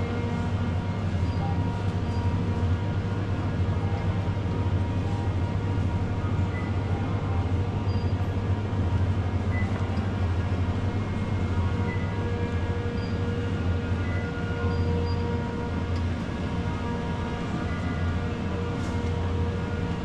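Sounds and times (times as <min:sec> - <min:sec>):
refrigerated display cases humming: 0:00.0 - 0:20.0.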